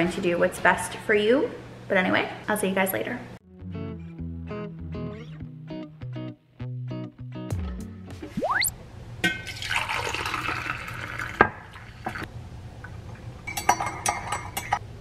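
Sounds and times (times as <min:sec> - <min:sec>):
coffee pouring into mug: 0:09.5 - 0:12.3.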